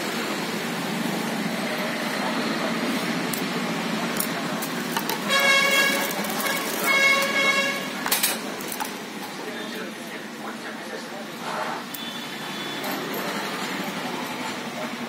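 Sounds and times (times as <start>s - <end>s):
road traffic: 0.0s - 15.0s
vehicle horn blasts: 5.2s - 8.0s.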